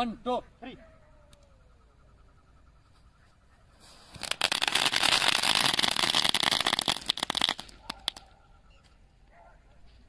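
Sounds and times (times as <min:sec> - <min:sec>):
firework spray with crackling pops: 0:03.6 - 0:08.4.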